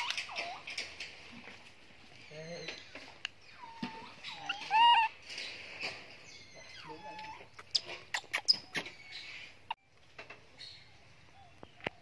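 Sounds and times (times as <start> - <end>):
baby monkey call: 3.5 - 5.2.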